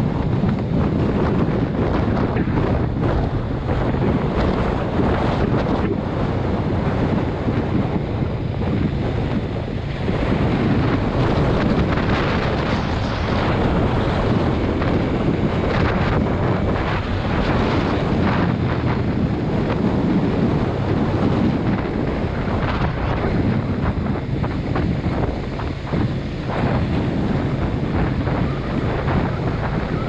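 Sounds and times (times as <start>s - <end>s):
motorcycle engine running: 0.0s - 30.0s
wind buffeting microphone: 0.0s - 30.0s.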